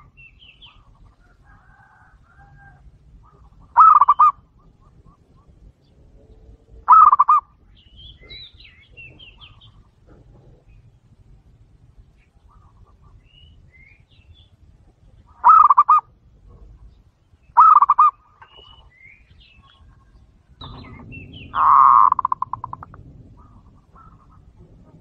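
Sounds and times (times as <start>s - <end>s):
dove cooing: 0.8s - 7.6s, 8.2s - 11.0s, 15.3s - 16.8s, 17.6s - 18.8s, 19.6s - 25.0s.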